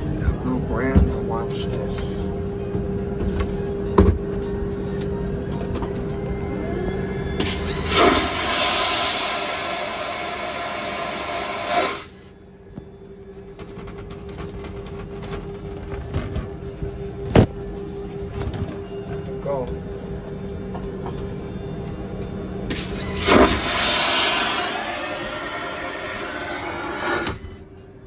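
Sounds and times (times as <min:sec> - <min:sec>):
cabin hum: 0:00.0 - 0:28.0
vacuum toilet flushing whoosh: 0:07.4 - 0:12.1, 0:22.7 - 0:27.4.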